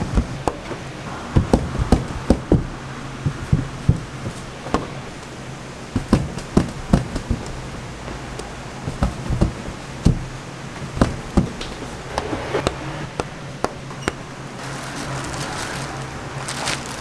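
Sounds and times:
plastic sheet crinkling: 14.6 - 17.0.

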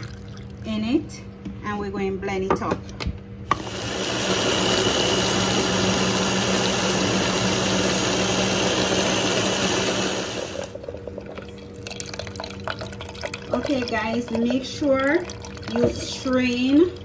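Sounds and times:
food chopper motor whirring: 3.5 - 10.8.

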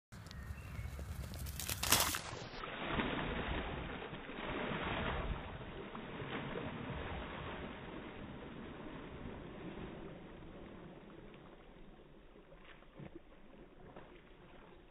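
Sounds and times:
dog splashing in water: 0.8 - 11.6.

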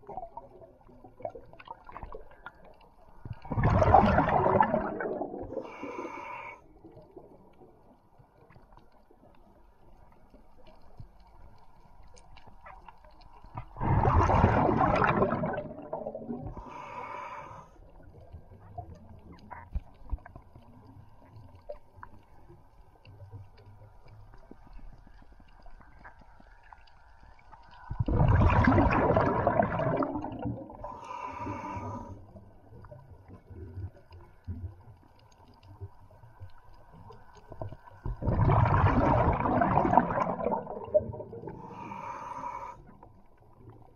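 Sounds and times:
low water noise: 0.0 - 43.9
gurgling exhaled air bubbles: 3.3 - 6.1, 13.6 - 16.8, 27.9 - 31.0, 37.5 - 42.0.

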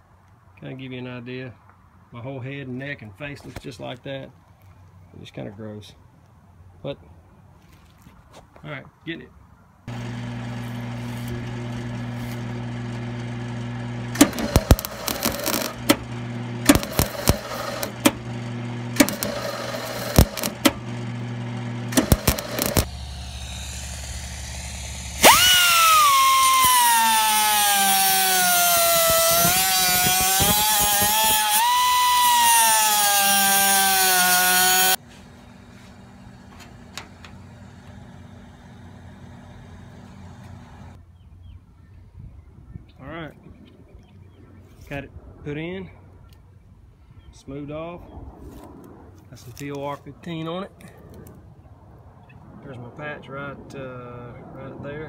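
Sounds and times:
steady electrical hum: 9.9 - 31.9
pneumatic cutoff tool grinding: 9.9 - 35.0
crackling tack welds: 9.9 - 41.0, 48.5 - 51.4.

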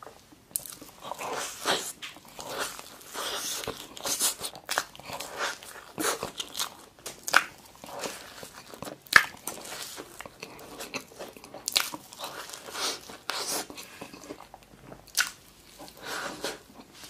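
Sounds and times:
wet bites and chewing: 0.5 - 16.0.

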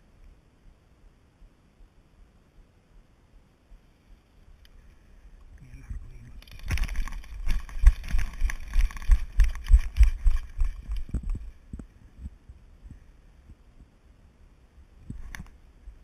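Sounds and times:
brush rustling: 6.1 - 11.7
gear rattling: 6.4 - 11.5
running footsteps on dirt: 6.4 - 11.8.

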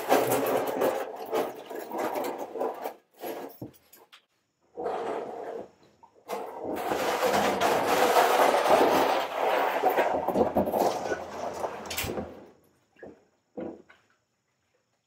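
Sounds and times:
plastic tank rumbling and scraping: 4.8 - 12.5.

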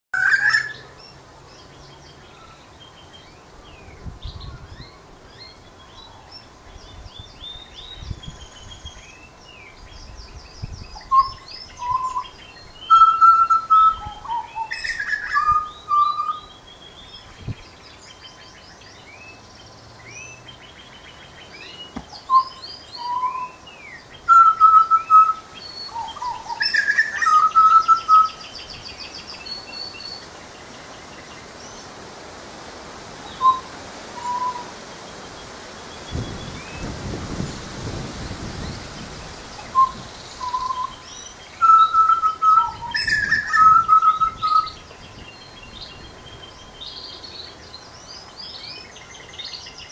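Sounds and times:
bird whistling piping notes: 0.1 - 0.8, 10.9 - 16.6, 21.6 - 23.6, 24.2 - 28.4, 33.3 - 34.7, 39.6 - 44.8.

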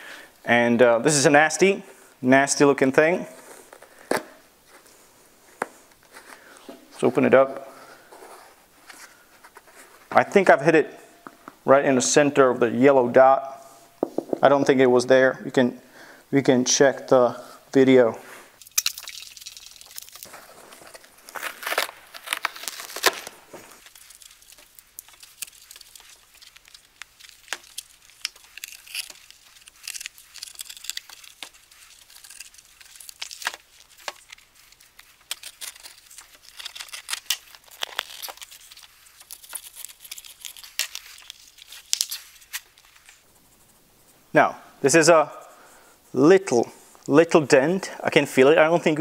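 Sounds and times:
fabric and foam tearing: 19.8 - 43.3.

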